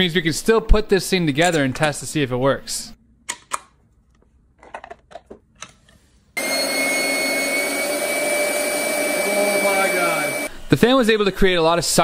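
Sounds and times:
plastic parts clicking: 0:03.3 - 0:06.0
fan motor high whine: 0:06.4 - 0:10.5.

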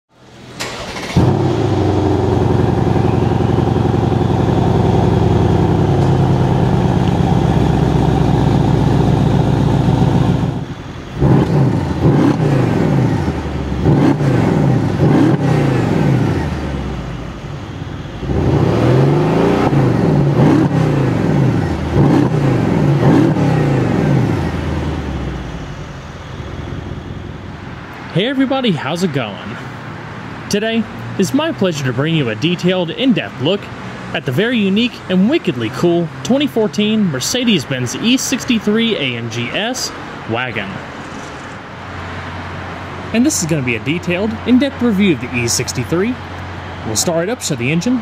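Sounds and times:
car engine starting and idling: 0:00.1 - 0:48.0
car engine revving: 0:00.2 - 0:27.8.

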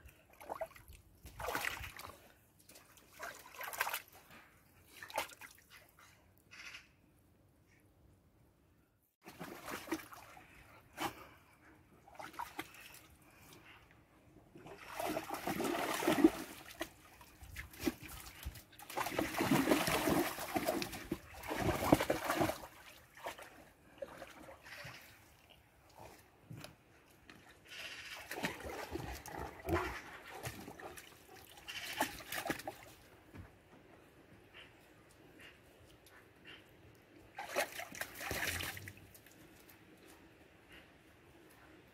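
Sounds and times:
dogs splashing in water: 0:00.3 - 0:04.2, 0:09.2 - 0:11.3, 0:14.6 - 0:26.2, 0:27.8 - 0:33.1, 0:37.3 - 0:39.3.

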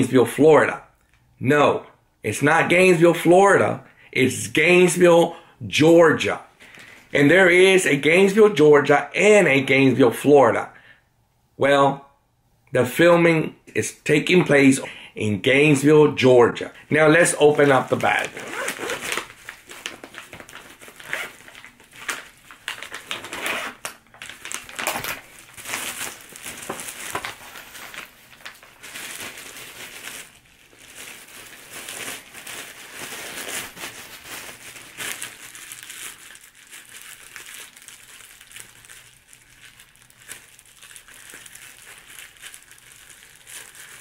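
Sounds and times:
plastic bag crinkling: 0:17.0 - 0:44.0.

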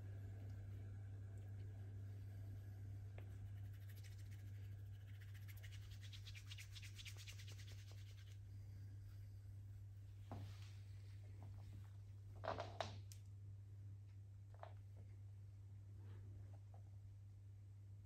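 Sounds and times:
steady low hum: 0:00.0 - 0:18.0
hands rubbing over skin: 0:03.2 - 0:11.0.

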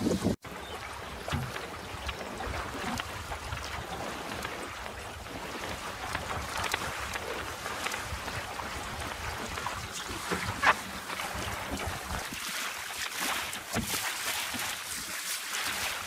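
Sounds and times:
wind rumbling on microphone: 0:00.0 - 0:12.4
water rushing along a hull: 0:00.0 - 0:16.0.

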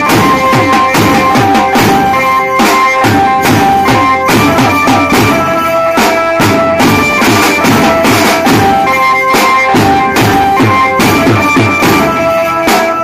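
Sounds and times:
banjo melody: 0:00.0 - 0:13.0
drums beating fast: 0:00.0 - 0:13.0
metal hand percussion: 0:00.0 - 0:13.0.

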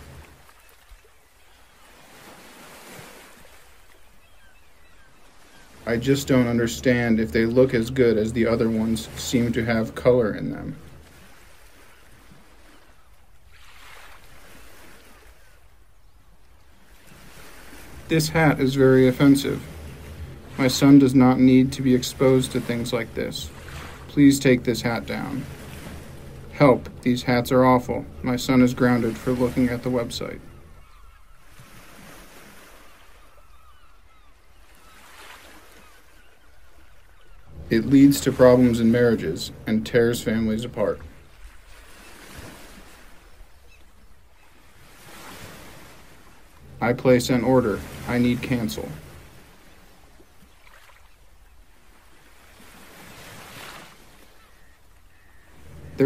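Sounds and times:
water rushing: 0:00.0 - 0:04.0, 0:05.1 - 0:15.7, 0:16.7 - 0:33.5, 0:37.2 - 0:56.0
wind: 0:00.0 - 0:56.0
soft outdoor hiss: 0:02.8 - 0:32.5
low hum: 0:17.8 - 0:31.3, 0:37.3 - 0:41.9, 0:46.1 - 0:50.2, 0:55.4 - 0:56.0.

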